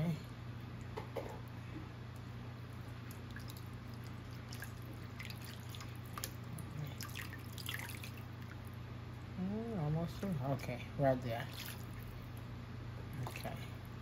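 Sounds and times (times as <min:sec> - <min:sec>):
low steady hum: 0:00.0 - 0:14.0
water trickling into a pot: 0:03.0 - 0:08.7.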